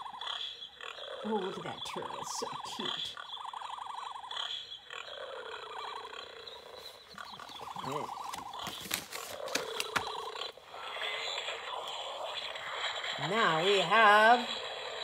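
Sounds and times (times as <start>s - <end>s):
warbling animal trill from speaker: 0.0s - 15.0s
pages turning: 6.9s - 10.5s
book handling clicks: 7.1s - 10.3s.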